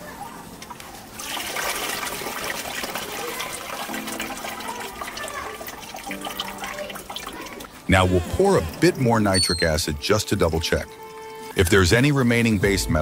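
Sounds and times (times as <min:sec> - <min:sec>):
liquid trickling into a bucket: 0:00.6 - 0:09.3.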